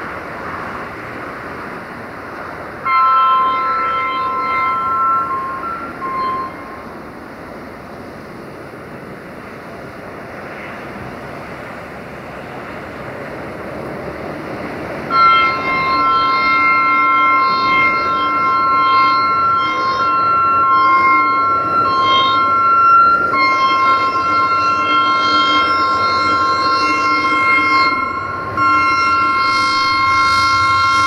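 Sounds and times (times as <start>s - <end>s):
train running: 0.0s - 31.0s
locomotive two-tone air horn: 2.8s - 7.0s, 15.1s - 31.0s.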